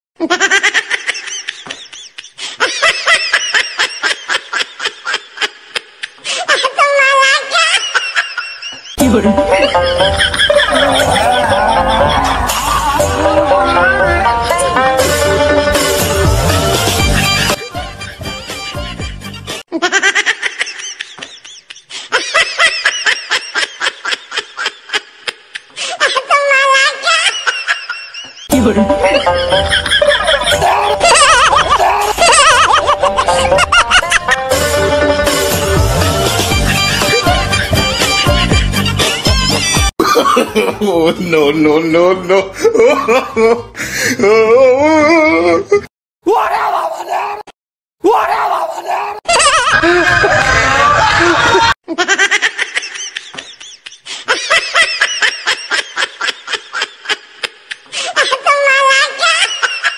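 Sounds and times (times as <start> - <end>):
high-pitched laughter: 0.2 - 14.7, 19.7 - 34.5, 48.9 - 59.9.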